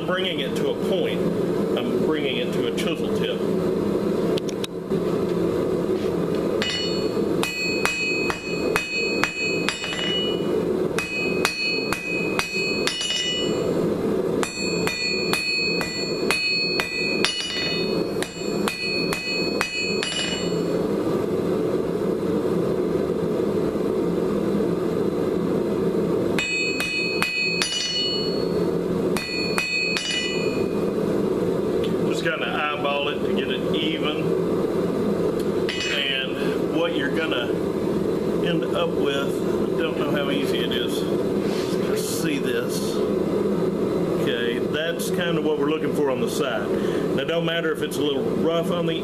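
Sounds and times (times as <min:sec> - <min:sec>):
hammer ringing on anvil: 0:06.6 - 0:13.6, 0:14.4 - 0:20.7, 0:26.4 - 0:28.6, 0:29.2 - 0:30.8, 0:35.7 - 0:36.2.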